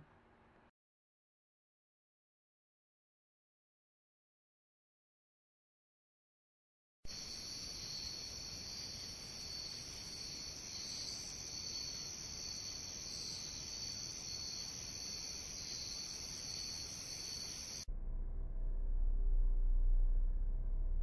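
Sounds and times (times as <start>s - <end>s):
crickets chirping: 7.1s - 17.9s.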